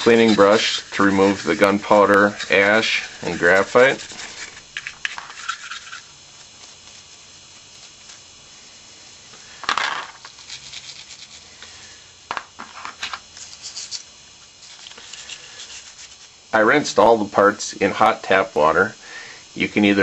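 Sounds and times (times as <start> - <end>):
bristle brush scrubbing: 0.0 - 8.7, 10.2 - 11.6, 13.4 - 16.4.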